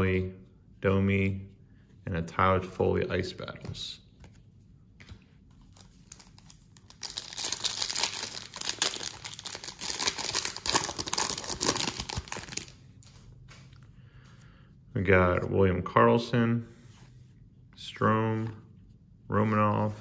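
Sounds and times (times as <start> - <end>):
foil wrapper crinkling and tearing: 5.9 - 12.8.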